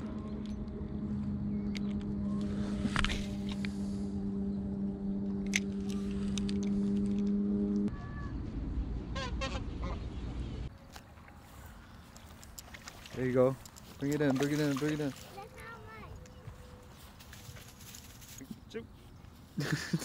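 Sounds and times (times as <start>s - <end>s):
engine-like hum: 0.0s - 20.0s
geese honking: 9.1s - 10.1s.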